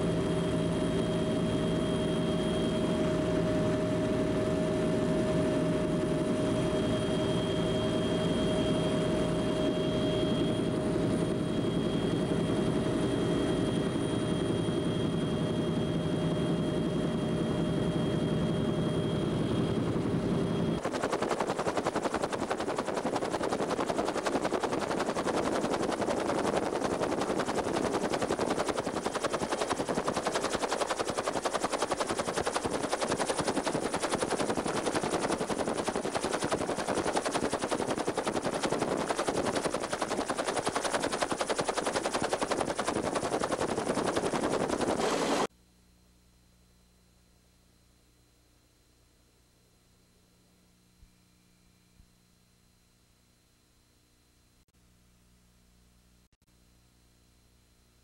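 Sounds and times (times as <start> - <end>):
helicopter turbine whine: 0.0 - 45.5
helicopter rotor chopping: 0.1 - 45.5.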